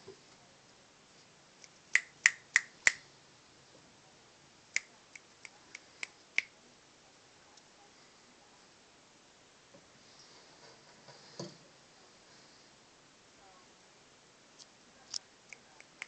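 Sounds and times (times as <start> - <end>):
finger snaps: 1.6 - 3.0, 4.8 - 6.5.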